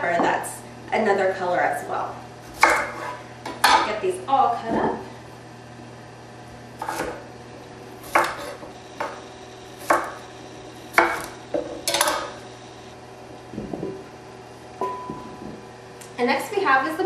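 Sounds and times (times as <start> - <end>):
knife chopping on wooden board: 2.5 - 3.9, 6.8 - 7.2, 8.0 - 9.2, 9.8 - 10.2, 10.9 - 12.3.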